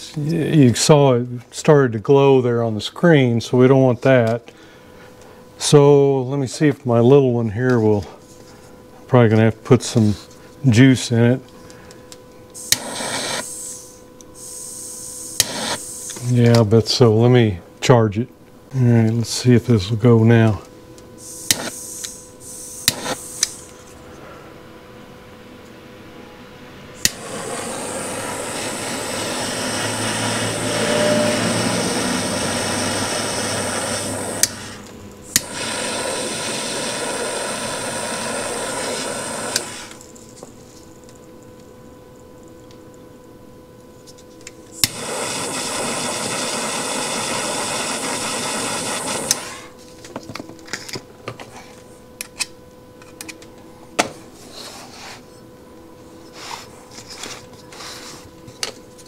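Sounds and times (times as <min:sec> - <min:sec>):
torch igniter click: 0:12.5 - 0:13.8, 0:15.4 - 0:16.6, 0:21.4 - 0:22.2, 0:22.8 - 0:23.8, 0:27.0 - 0:40.0, 0:44.7 - 0:49.6
butane torch hissing: 0:12.6 - 0:16.5, 0:21.2 - 0:23.8, 0:27.0 - 0:40.1, 0:44.7 - 0:49.8.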